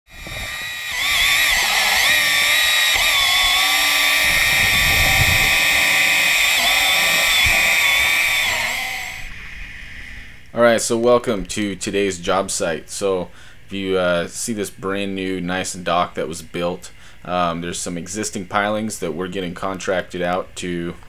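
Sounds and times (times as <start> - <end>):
underwater chainsaw whine: 0.1 - 10.5.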